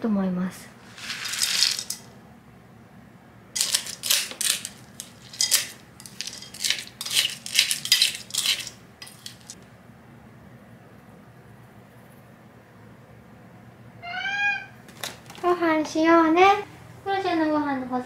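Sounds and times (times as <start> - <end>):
kibble pouring into bowl: 0.8 - 2.0, 3.6 - 9.6
spoon stirring kibble in ceramic bowl: 0.8 - 2.0, 3.6 - 9.6.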